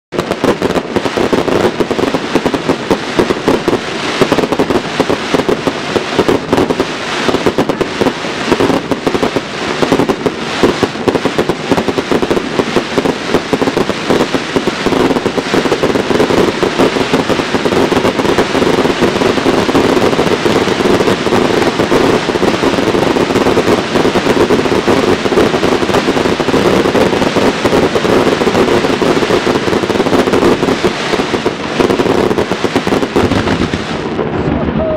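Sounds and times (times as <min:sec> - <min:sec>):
fireworks bangs and crackling: 0:00.1 - 0:34.9.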